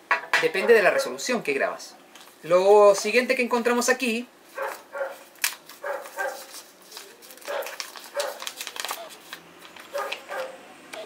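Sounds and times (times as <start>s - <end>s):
plastic packaging crinkling: 4.5s - 10.6s.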